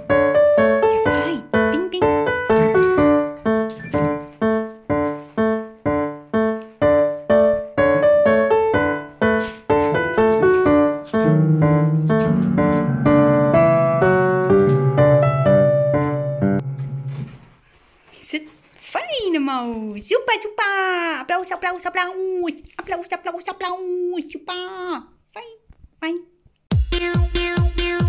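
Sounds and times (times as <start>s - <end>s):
piano melody: 0.0s - 17.6s.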